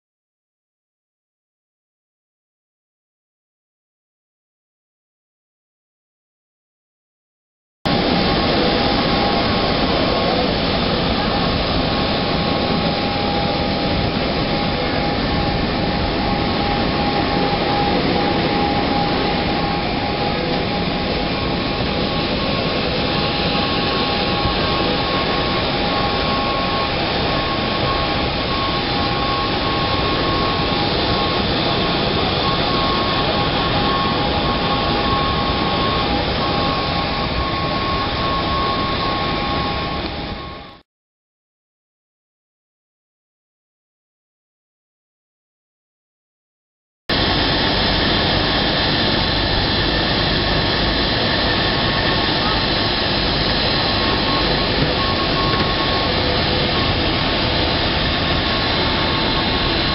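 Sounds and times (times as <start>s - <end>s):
jet turbine whine: 7.9s - 40.8s, 47.1s - 59.9s.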